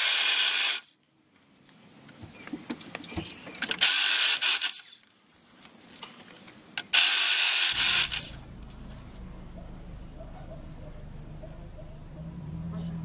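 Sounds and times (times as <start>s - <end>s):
rotary hammer drilling steel: 6.9s - 8.5s.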